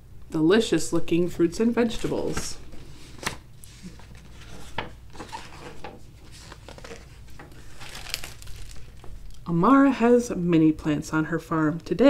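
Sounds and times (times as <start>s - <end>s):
book pages rustling: 1.9s - 9.4s.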